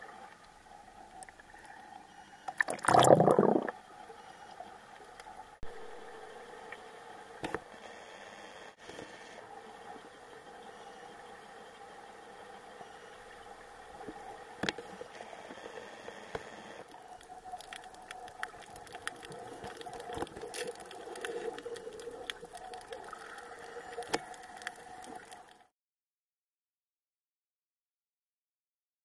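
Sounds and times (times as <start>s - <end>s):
underwater hum: 0.0s - 25.7s
sharp clicks and crackles: 16.8s - 25.7s.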